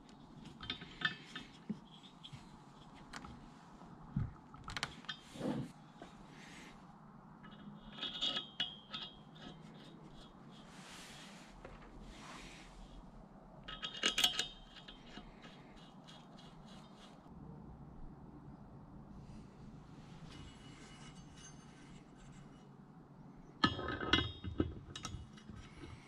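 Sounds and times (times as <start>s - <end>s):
soft rubbing of hands and parts: 0.0s - 8.4s, 9.1s - 17.3s, 19.1s - 22.8s.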